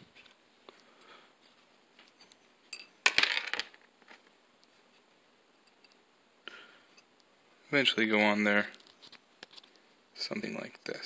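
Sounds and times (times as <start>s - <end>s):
faint room noise: 0.0s - 11.0s.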